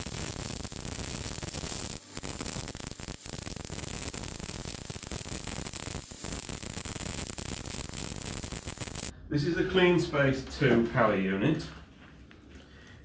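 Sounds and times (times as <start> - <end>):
welding arc crackling: 0.0 - 9.1.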